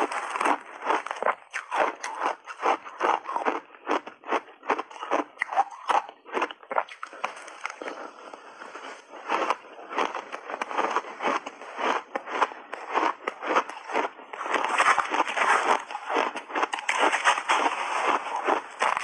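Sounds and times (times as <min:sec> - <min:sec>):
chewing shaved ice: 0:00.0 - 0:19.0.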